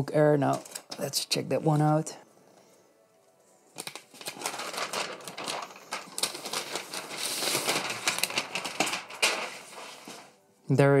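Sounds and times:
paper wrap rustling and crinkling: 0.3 - 1.9, 3.6 - 10.5.

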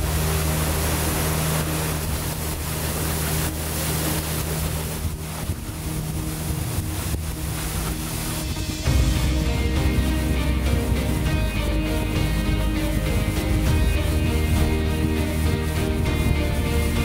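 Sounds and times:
motorboat engine running: 0.0 - 17.0
rushing water: 0.0 - 17.0
wind: 0.0 - 17.0.

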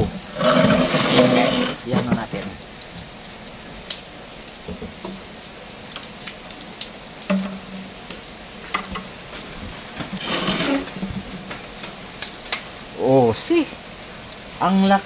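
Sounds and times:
scraping rustle: 0.2 - 2.4, 9.3 - 12.6.

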